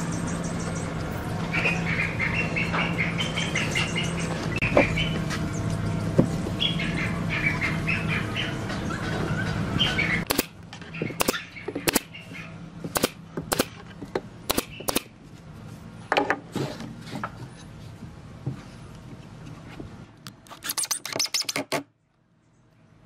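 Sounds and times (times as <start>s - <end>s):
birds chirping: 0.0s - 13.5s, 14.5s - 15.1s
nail gun firing into wood: 10.3s - 10.6s, 12.9s - 13.8s, 14.5s - 15.1s.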